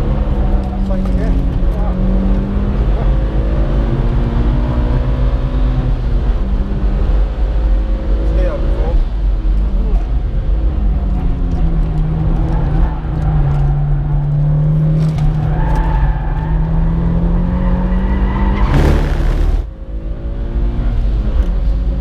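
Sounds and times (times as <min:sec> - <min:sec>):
car engine at speed: 0:00.0 - 0:22.0
loud rushing noise: 0:18.6 - 0:19.8.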